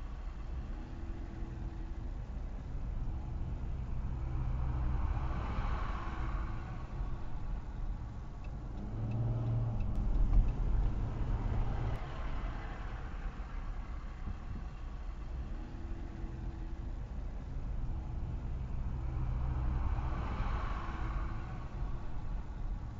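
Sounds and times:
car engine and road rumble: 0.0s - 22.9s.

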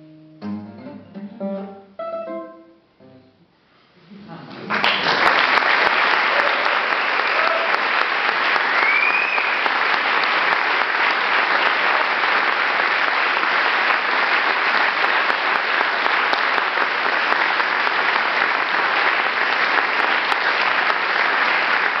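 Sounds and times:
audience applauding: 4.5s - 22.0s.

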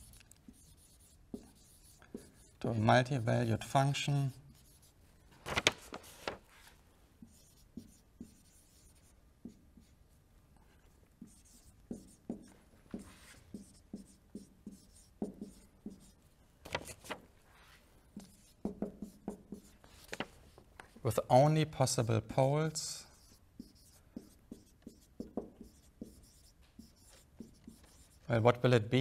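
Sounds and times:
marker writing on whiteboard: 0.0s - 5.0s, 7.2s - 10.0s, 11.2s - 16.2s, 18.1s - 20.2s, 22.8s - 28.4s.

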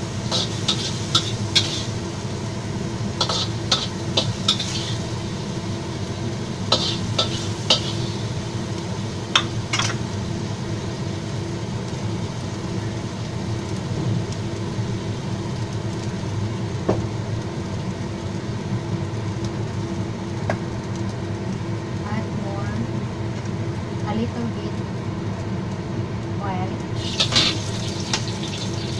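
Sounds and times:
gas burner hum and hiss: 0.0s - 28.9s
metal spatula scraping a wok: 0.3s - 2.0s, 3.2s - 5.0s, 6.7s - 8.2s.

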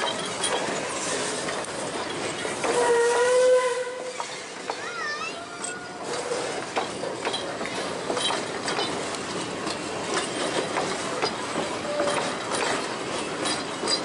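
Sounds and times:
wheel squeal: 0.0s - 4.8s, 11.2s - 14.0s
train wheels clattering over rail joints: 0.0s - 14.0s.

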